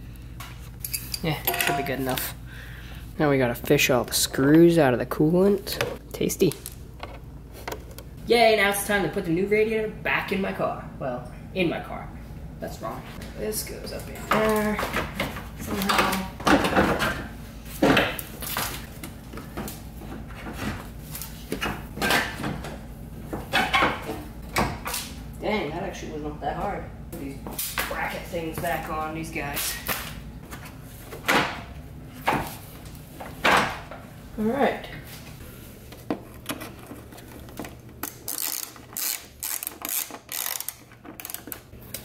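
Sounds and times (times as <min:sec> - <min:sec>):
socket ratchet clicking: 0:38.0 - 0:41.6.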